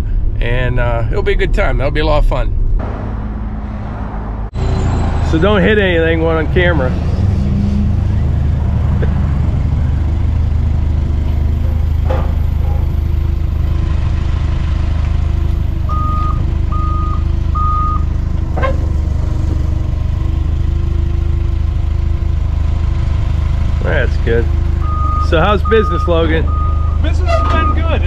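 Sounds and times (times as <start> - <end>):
forklift engine running: 2.7 - 28.0
reversing alarm beeps: 15.9 - 18.0, 24.8 - 28.0.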